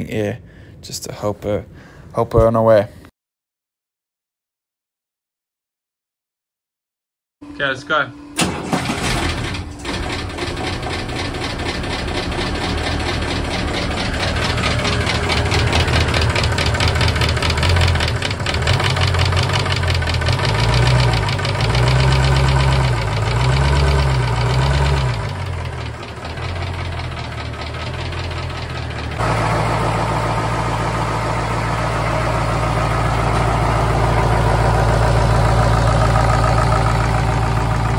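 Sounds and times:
diesel engine idling unevenly: 8.4 - 37.9.

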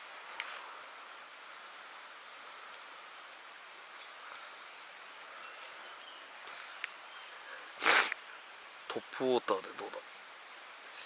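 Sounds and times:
insects hissing: 0.0 - 11.0
small high ticks: 0.2 - 7.0.

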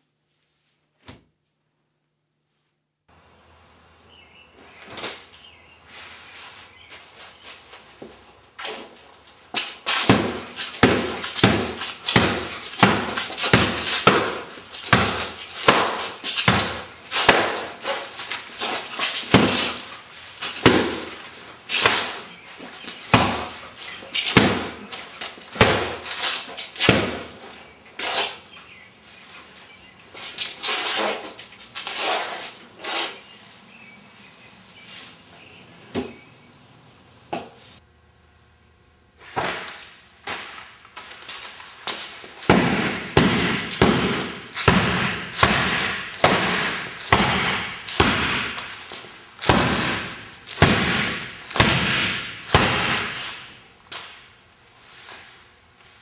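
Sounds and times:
umbrella whacking punching bag: 9.9 - 19.9, 20.5 - 22.4, 23.1 - 26.2, 42.5 - 53.5.

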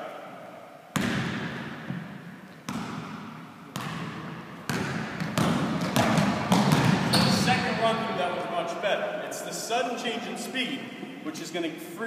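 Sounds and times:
basketball bouncing on gym floor: 0.9 - 7.7.

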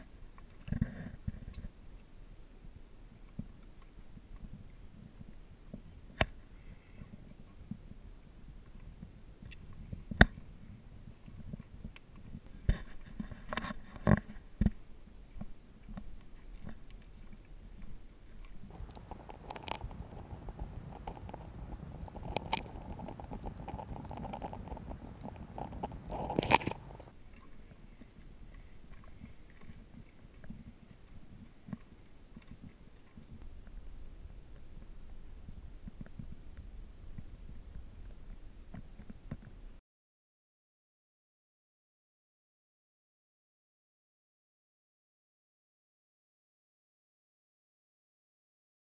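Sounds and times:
footsteps crunching on shale: 18.7 - 27.1.

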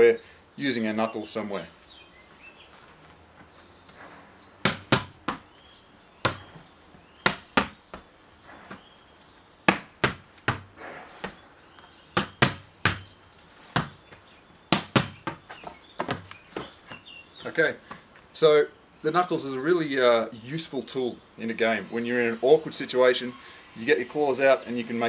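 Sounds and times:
ball bouncing off wall: 4.6 - 5.5, 6.2 - 6.6, 9.7 - 11.4, 12.2 - 13.1, 14.7 - 15.4
volleyball hit by hands: 4.6 - 5.5, 6.2 - 6.6, 7.2 - 8.1, 9.7 - 11.4, 12.2 - 16.8.

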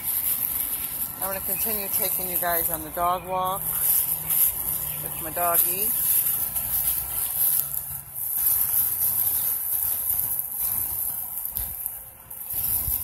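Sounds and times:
insects chorus: 0.0 - 7.6.

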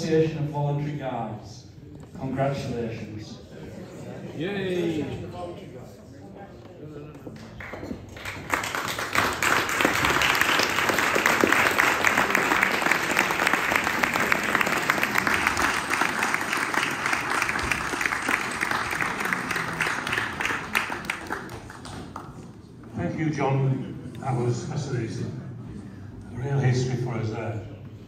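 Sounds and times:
audience applauding: 7.6 - 22.6.

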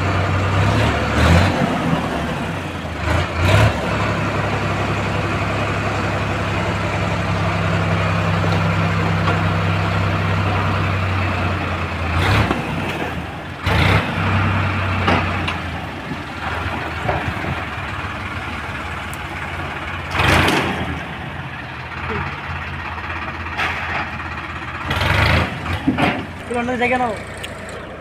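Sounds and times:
tractor diesel engine running: 0.0 - 28.0.

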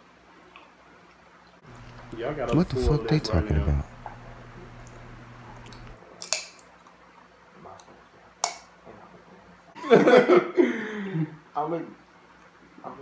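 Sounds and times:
person speaking: 2.0 - 4.0.

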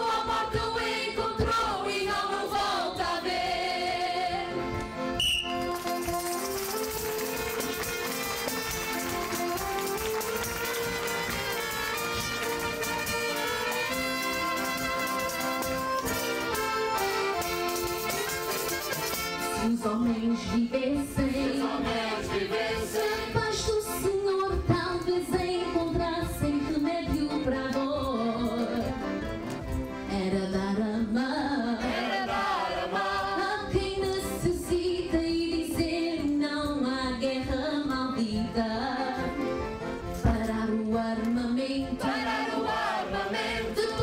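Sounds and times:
instrumental accompaniment: 0.0 - 44.0
woman singing into microphone: 19.5 - 21.4, 23.2 - 28.9, 30.1 - 31.9, 33.4 - 39.3, 40.2 - 42.1.

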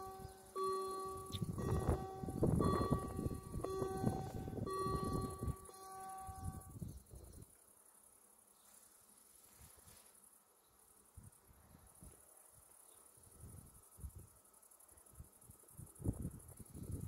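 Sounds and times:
low rumble and held tones: 0.0 - 7.5
insects chirring: 0.0 - 17.0
wind buffeting microphone: 1.1 - 7.4, 15.8 - 17.0.

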